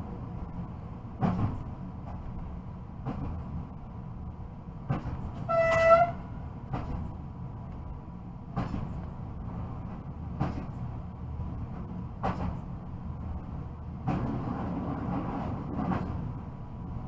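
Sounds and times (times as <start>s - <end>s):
train rumble: 0.0s - 17.0s
train horn toot: 5.5s - 6.3s.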